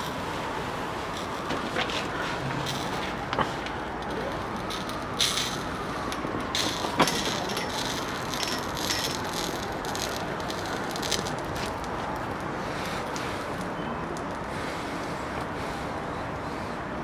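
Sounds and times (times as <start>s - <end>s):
flames crackling and popping: 0.0s - 16.7s
sharp crack: 1.2s - 12.4s.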